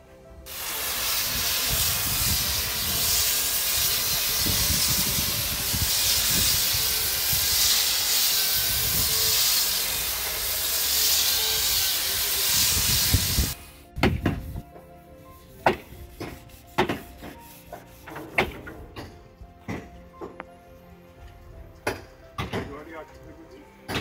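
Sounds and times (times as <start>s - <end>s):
angle grinder grinding paint: 0.5s - 13.6s.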